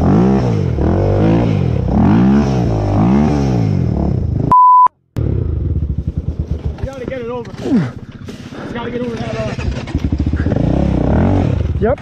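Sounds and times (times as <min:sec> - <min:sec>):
quad engine revving: 0:00.0 - 0:04.5, 0:05.2 - 0:12.0
censor bleep: 0:04.5 - 0:05.0.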